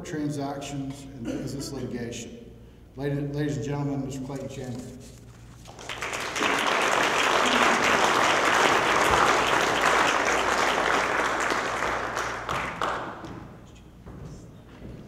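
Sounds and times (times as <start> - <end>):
audience applauding: 5.7 - 13.3.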